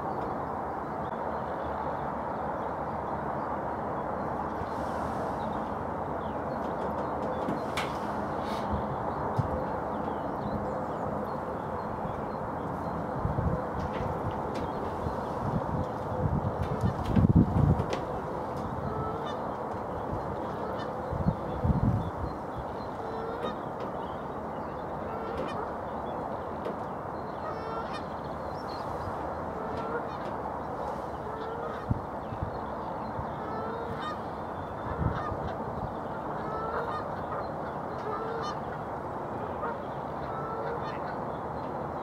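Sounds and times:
steady background noise: 0:00.0 - 0:42.0
waterfowl calling: 0:18.4 - 0:41.7.

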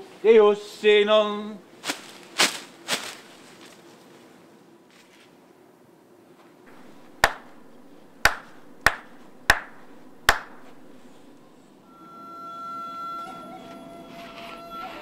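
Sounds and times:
sharp hand claps: 0:06.8 - 0:10.8.

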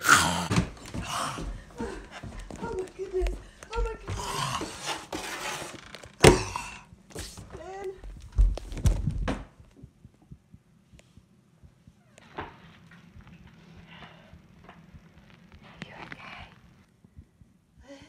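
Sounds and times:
body thumps on floor: 0:07.2 - 0:09.6.

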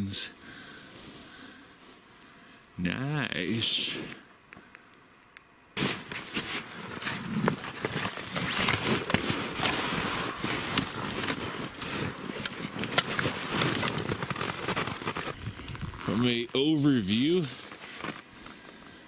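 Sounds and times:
glove brushing against log wall: 0:05.8 - 0:15.3
footsteps crunching in snow: 0:05.8 - 0:19.0
parka rustling: 0:05.8 - 0:19.0.

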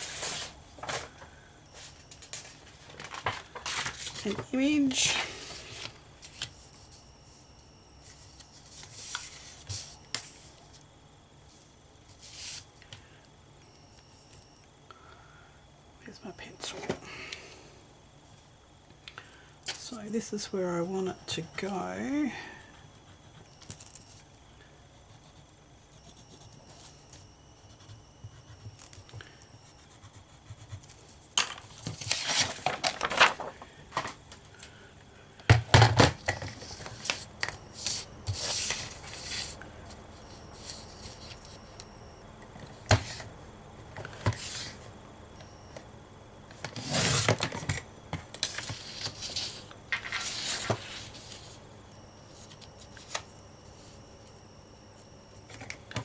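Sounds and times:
paper rustling: 0:31.8 - 0:34.2.

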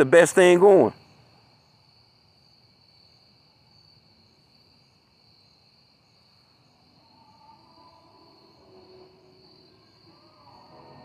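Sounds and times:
faint high-pitched tone: 0:06.4 - 0:11.0.

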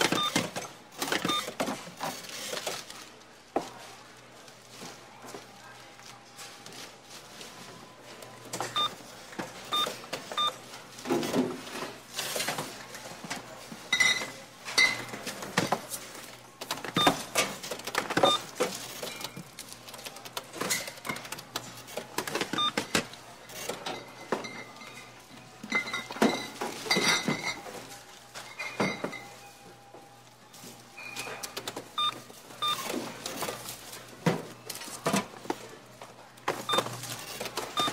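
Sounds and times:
cash register beeps: 0:00.0 - 0:02.6, 0:08.5 - 0:09.0, 0:09.6 - 0:10.7, 0:16.8 - 0:17.6, 0:18.2 - 0:19.4, 0:21.2 - 0:27.9, 0:30.9 - 0:33.4, 0:36.6 - 0:37.9
goods and bags clattering: 0:00.0 - 0:37.9.

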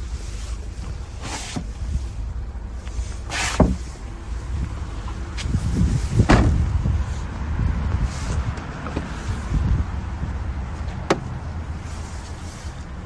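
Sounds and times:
wind rumble on microphone: 0:00.0 - 0:13.0
car boot lid shutting: 0:03.3 - 0:03.8, 0:06.2 - 0:06.6, 0:11.0 - 0:11.3.

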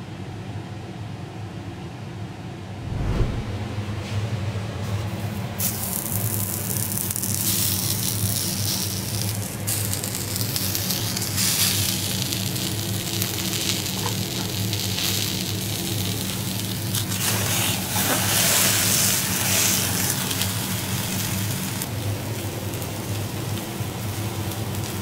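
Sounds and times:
leaves sizzling on hot griddle: 0:05.6 - 0:25.0.

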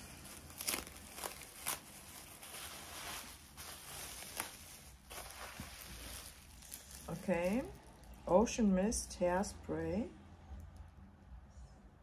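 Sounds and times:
packaging rustling: 0:00.0 - 0:08.3.

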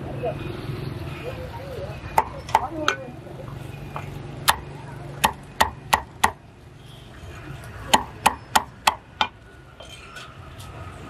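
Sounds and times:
cleaver chopping on wooden block: 0:05.2 - 0:06.4, 0:07.9 - 0:09.4.

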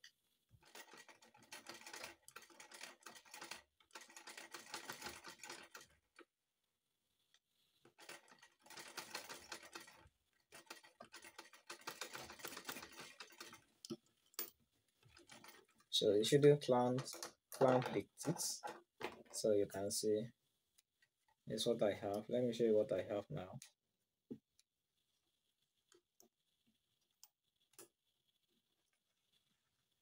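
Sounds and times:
sewing machine stitching: 0:00.6 - 0:06.2, 0:07.9 - 0:13.7, 0:15.0 - 0:15.9.

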